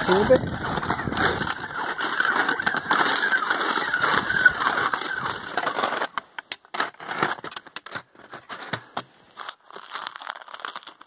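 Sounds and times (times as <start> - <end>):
skis scraping over icy snow: 0.0 - 11.0
crunches and snaps: 0.4 - 11.0.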